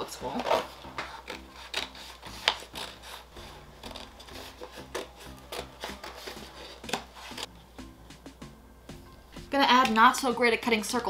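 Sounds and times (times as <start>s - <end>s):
paper creasing crackles: 0.3s - 7.5s
stiff paper crinkling: 0.3s - 7.5s.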